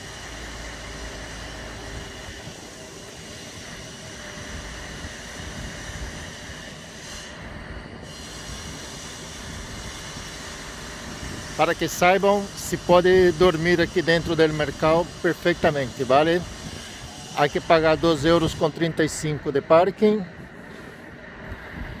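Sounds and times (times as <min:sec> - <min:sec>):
refrigerated trucks humming: 0:00.0 - 0:06.2.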